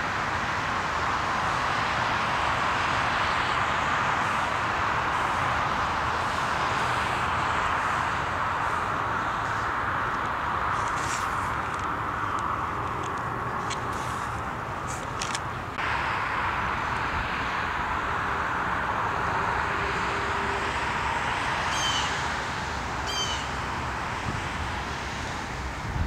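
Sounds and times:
steady outdoor hiss: 0.0s - 26.0s
short bird calls: 21.7s - 22.2s, 23.1s - 23.5s.

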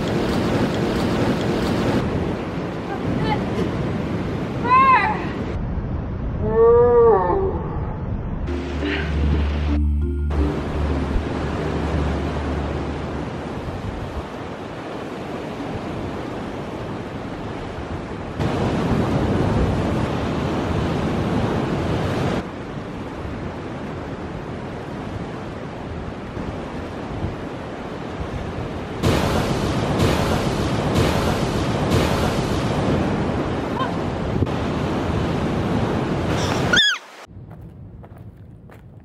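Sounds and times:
surf breaking on rocky shore: 0.0s - 4.9s, 11.3s - 22.5s, 26.2s - 37.3s.

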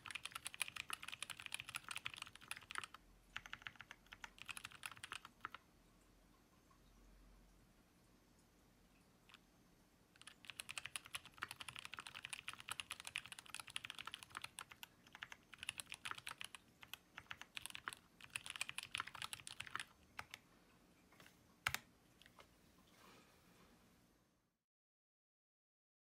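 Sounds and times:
fast typing on mechanical keyboard: 0.0s - 5.6s, 10.2s - 20.4s.

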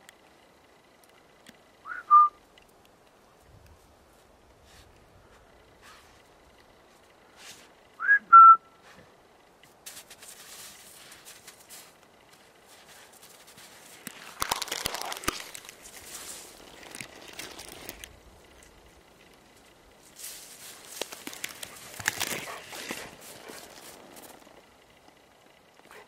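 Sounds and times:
person whistling to a dog: 1.9s - 2.4s, 8.0s - 8.8s
rustling in branches and snow: 3.2s - 7.9s, 8.8s - 25.5s.

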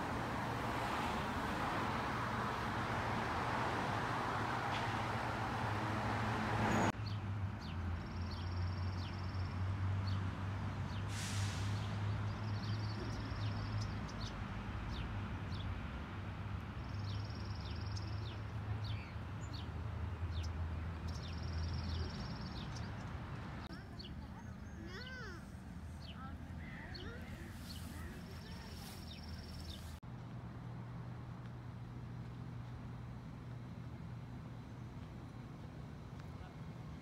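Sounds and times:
low city traffic hum: 0.0s - 37.0s
street noise: 0.0s - 37.0s
small birds chirping: 16.8s - 30.0s.

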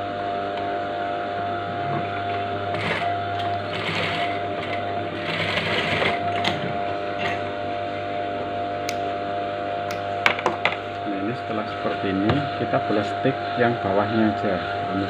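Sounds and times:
sewing machine stitching: 2.7s - 6.7s.

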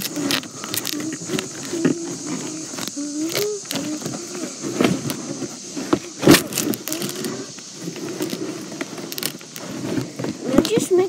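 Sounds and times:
cardboard box being torn: 6.2s - 7.3s.

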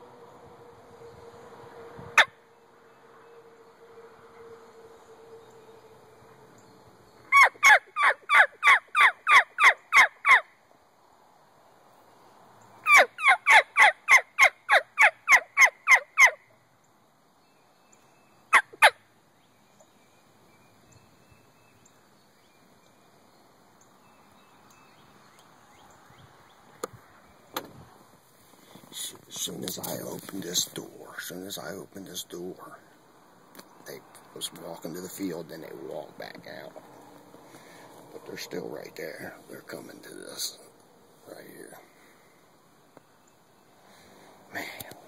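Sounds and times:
turkey yelping: 7.3s - 10.5s, 12.8s - 16.4s.

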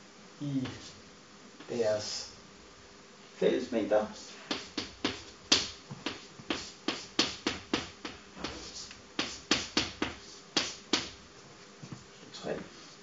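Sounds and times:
chalk tapping on a blackboard: 4.2s - 11.2s.

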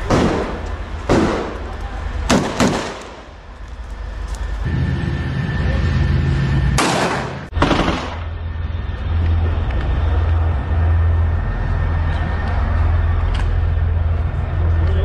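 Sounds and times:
low rumble: 0.0s - 15.0s
gunfire bursts: 0.1s - 1.6s, 2.3s - 3.2s, 6.8s - 8.3s.

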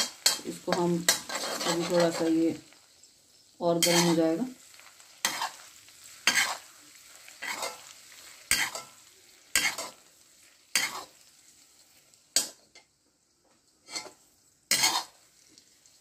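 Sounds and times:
ladle scraping iron pan: 0.0s - 2.3s
faint sizzle of fat: 0.0s - 16.0s.

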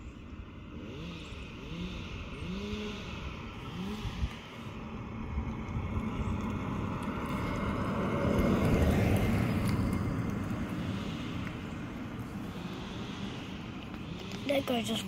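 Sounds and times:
vehicle passing by: 0.0s - 15.0s.

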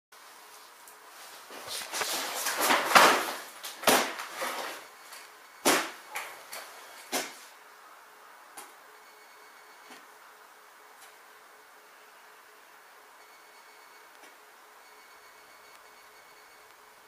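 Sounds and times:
rustling and shuffling: 0.2s - 7.6s.

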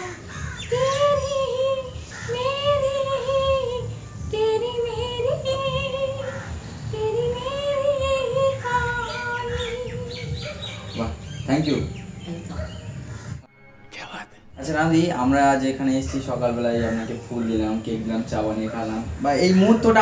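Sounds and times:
woman singing unaccompanied: 0.0s - 11.3s.

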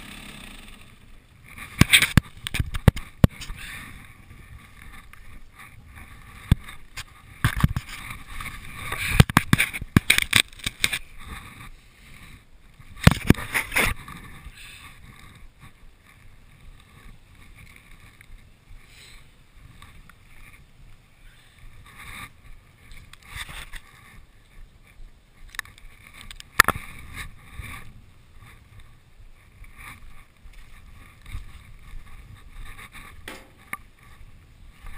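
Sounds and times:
low wind rumble: 0.0s - 34.9s
rustles: 0.0s - 34.9s
camera handling noise: 1.6s - 3.6s, 6.5s - 11.1s, 13.0s - 14.0s
sharp knocks: 33.2s - 33.7s.

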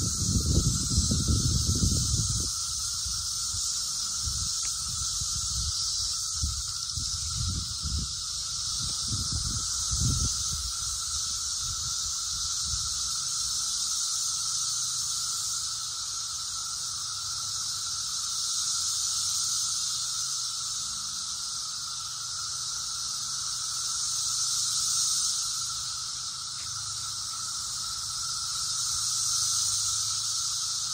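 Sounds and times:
cicadas droning: 0.0s - 30.9s.

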